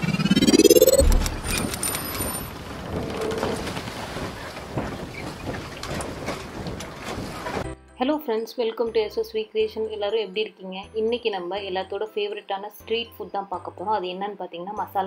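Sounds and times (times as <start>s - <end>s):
rising tone sweep: 0.0s - 2.4s
rushing crackling noise: 0.0s - 7.6s
deep boom: 0.4s - 1.7s
scattered clicks: 0.7s - 2.5s.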